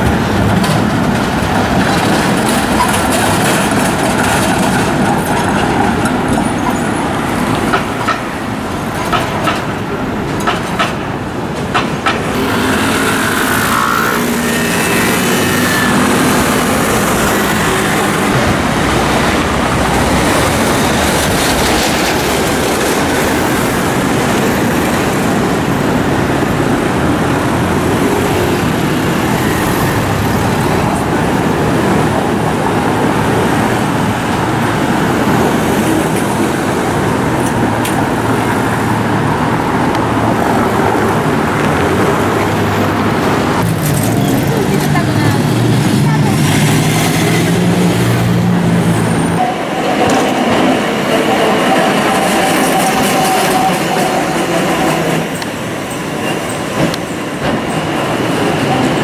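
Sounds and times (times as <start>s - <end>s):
tram clicks and knocks: 0.0s - 13.0s, 13.6s - 59.0s
scooter and car engines: 12.2s - 56.2s.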